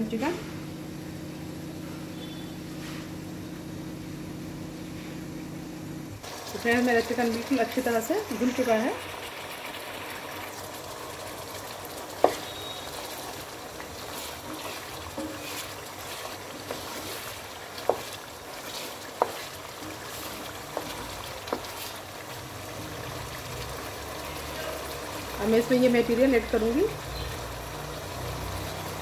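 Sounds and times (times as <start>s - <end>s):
curry bubbling and sizzling in a pot: 6.2s - 29.0s.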